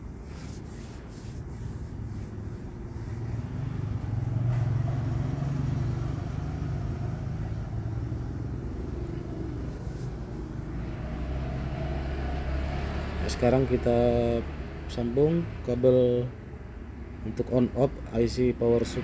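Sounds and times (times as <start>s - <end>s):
passing vehicle engine rumble: 0.0s - 19.0s.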